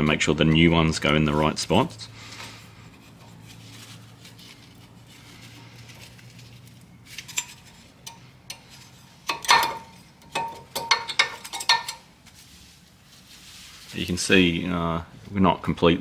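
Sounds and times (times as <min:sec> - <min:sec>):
metal brake pads clinking: 0:07.1 - 0:12.1.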